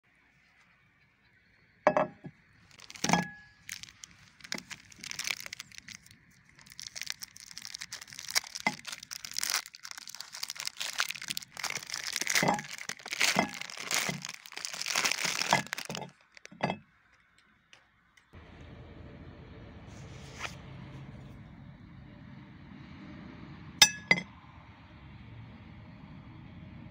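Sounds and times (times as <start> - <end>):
plastic wrap crinkling: 2.6 - 16.8.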